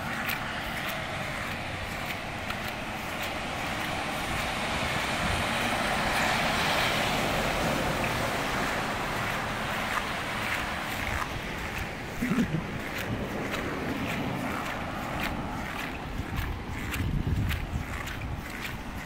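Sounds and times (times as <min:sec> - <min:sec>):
truck tyres hissing on wet road: 0:00.0 - 0:17.4.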